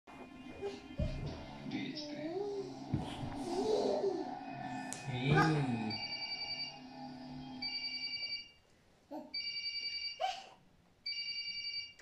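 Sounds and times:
electronic telephone ringtone: 5.9 - 6.8.

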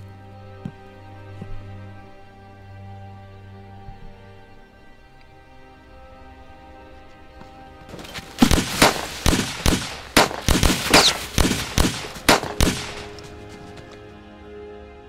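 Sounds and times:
soft music score: 0.0 - 15.0
loud gunshots: 8.4 - 13.2.

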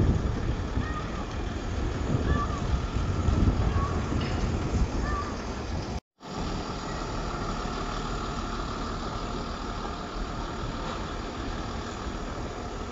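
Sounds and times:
van engine running: 6.2 - 12.9.

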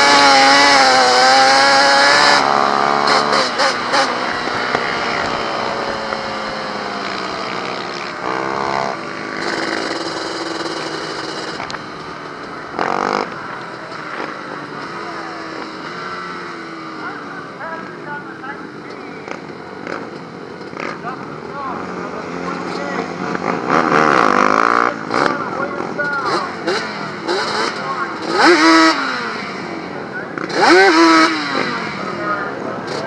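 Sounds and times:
quad engine revving: 0.0 - 17.4, 21.7 - 33.0.

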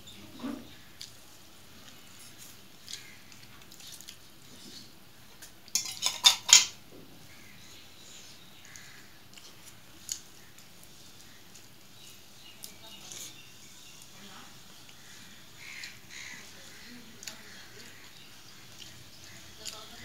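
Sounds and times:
steel bowl clinking on plate: 5.8 - 6.8
rice squishing by hand: 7.3 - 20.0.

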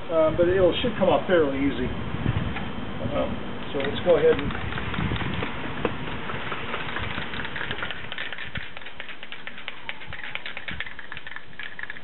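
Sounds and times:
aerosol can shaken ball rattling: 3.7 - 12.0.

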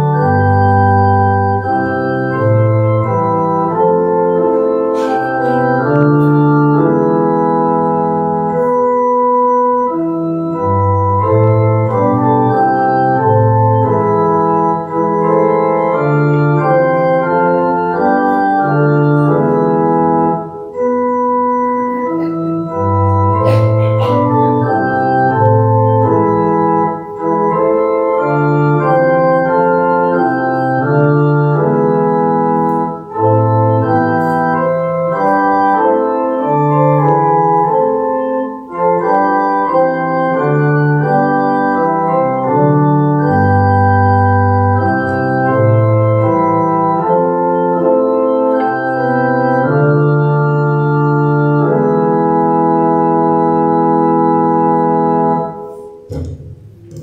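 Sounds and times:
organ playing slow prelude: 0.0 - 57.0.

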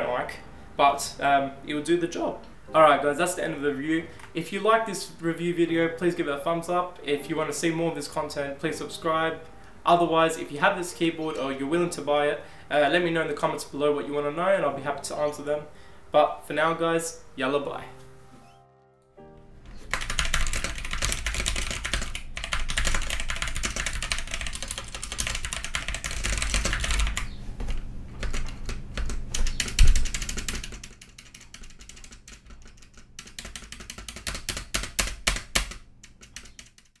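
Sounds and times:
mechanical keyboard typing: 19.8 - 37.0.

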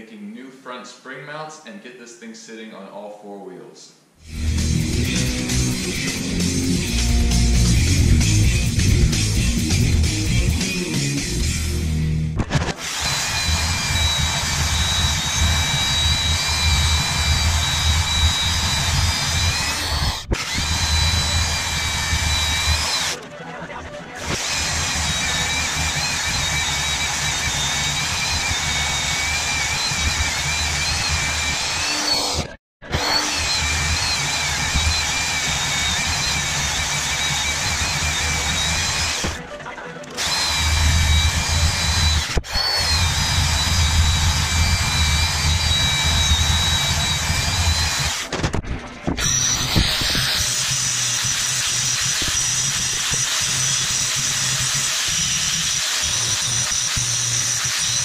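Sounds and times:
angle grinder cutting steel: 4.2 - 11.6, 12.6 - 23.3, 24.1 - 48.4, 49.2 - 58.0
band saw cutting steel: 4.2 - 11.8, 12.5 - 23.4, 24.1 - 48.4, 49.1 - 58.0.

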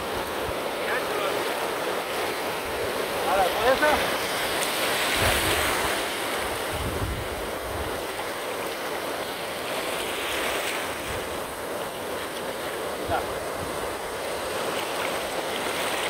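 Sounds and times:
surf washing in: 0.0 - 16.0
wind rumbling on microphone: 5.0 - 8.2.

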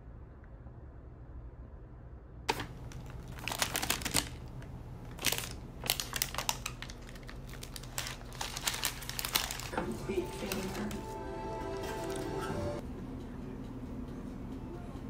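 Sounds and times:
paper rustling and crinkling: 2.5 - 12.3.

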